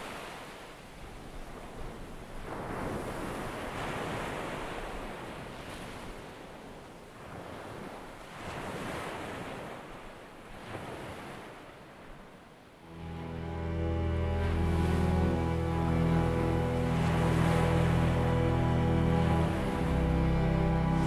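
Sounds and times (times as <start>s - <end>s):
sea surf washing in: 12.8s - 21.0s.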